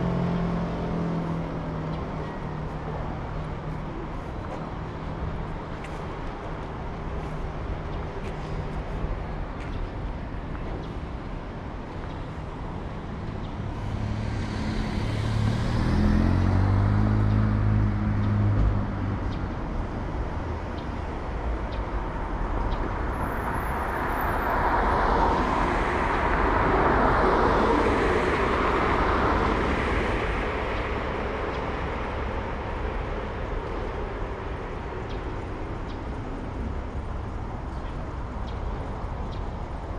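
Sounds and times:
engine hum: 0:00.0 - 0:39.9
tyre and road noise: 0:00.0 - 0:39.9.

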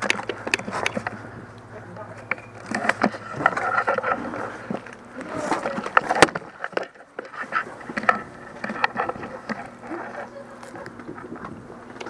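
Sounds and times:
sharp clicks and knocks: 0:00.0 - 0:05.0.

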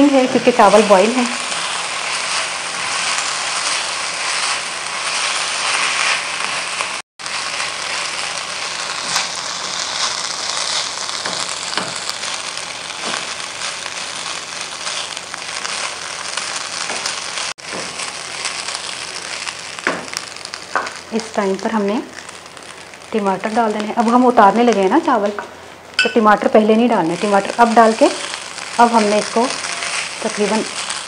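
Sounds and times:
rice sizzling in hot oil: 0:00.0 - 0:31.0
spatula scraping a pan: 0:01.3 - 0:08.1, 0:29.1 - 0:31.0.

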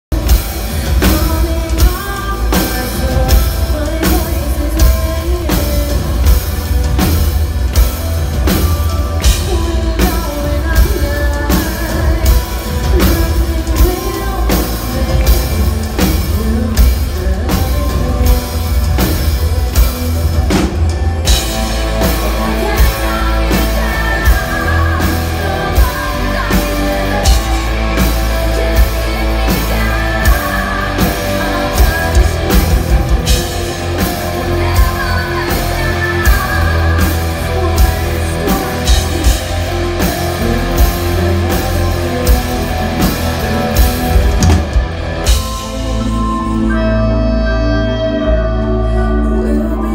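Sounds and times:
metal band playing live: 0:00.0 - 0:49.9
drum kit beat: 0:00.1 - 0:46.6
woman singing lead: 0:00.2 - 0:49.9.

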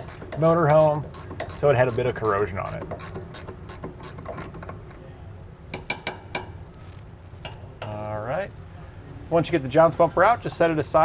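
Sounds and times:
ratcheting wrench clicking: 0:00.0 - 0:04.6.

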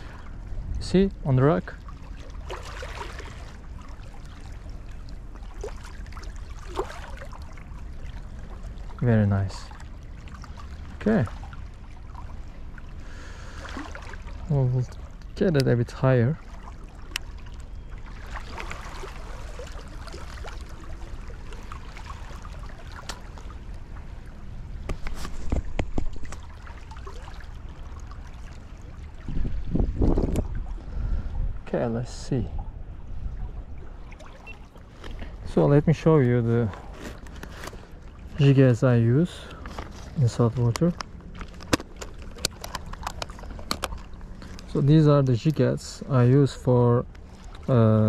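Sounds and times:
seawater washing among rocks: 0:01.0 - 0:24.2, 0:34.1 - 0:45.6
low rumbles and knocks: 0:24.8 - 0:26.4, 0:29.2 - 0:30.9.

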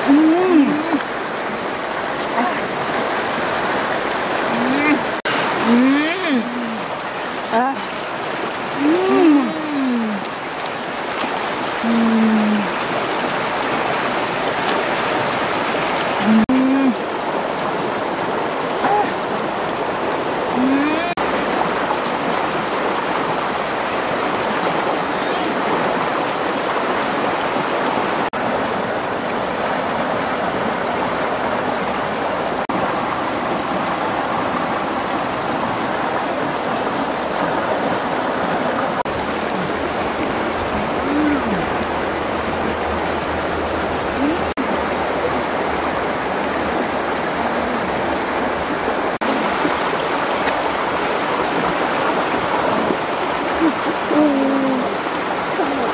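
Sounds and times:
river water rushing over rocks: 0:00.0 - 0:55.9.

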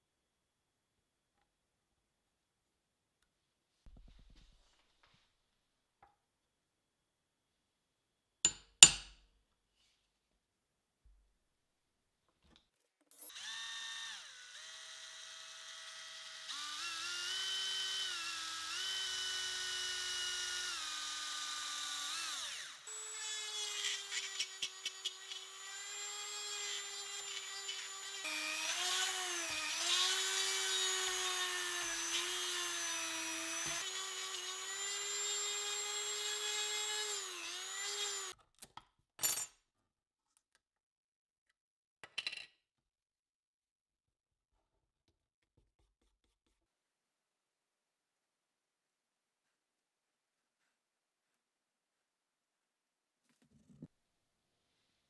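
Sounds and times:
rotary tool whining into wood: 0:13.2 - 0:38.4
cordless drill whining into wood: 0:13.3 - 0:38.4.

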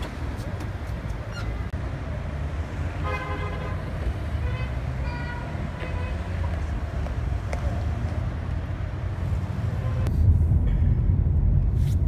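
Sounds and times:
rumble of passing cars: 0:00.0 - 0:12.0.

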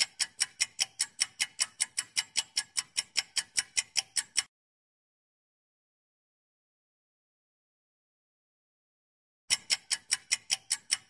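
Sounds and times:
clock ticking: 0:00.0 - 0:04.5, 0:09.5 - 0:11.0.

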